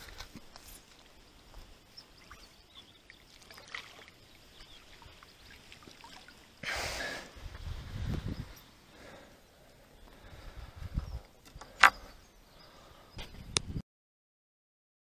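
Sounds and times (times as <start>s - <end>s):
water dripping and trickling: 2.1s - 6.6s.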